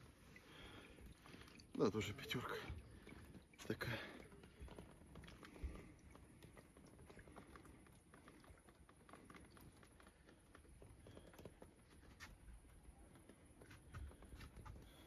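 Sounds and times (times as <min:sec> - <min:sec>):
faint irregular clicks: 0:04.2 - 0:15.0.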